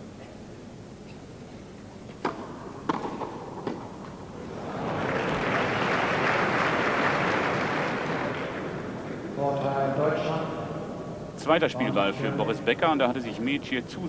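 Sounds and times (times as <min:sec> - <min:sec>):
tennis ball hitting racket: 0:02.1 - 0:04.2
crowd applause: 0:04.4 - 0:09.4.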